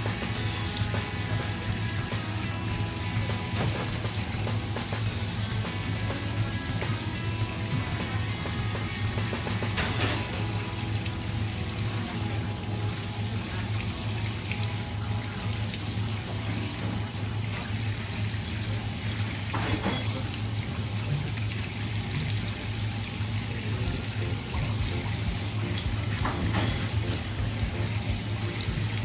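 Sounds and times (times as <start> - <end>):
background music: 0.0 - 15.9, 23.9 - 29.0
tap water running into sink: 0.0 - 29.0.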